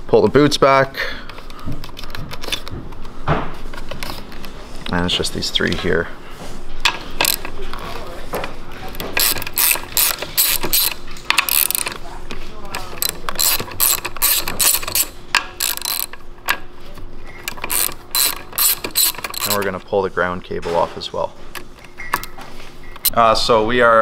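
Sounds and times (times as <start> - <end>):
ratchet wrench clicking: 6.8 - 7.8, 8.9 - 12.0, 12.7 - 16.6, 17.4 - 19.7.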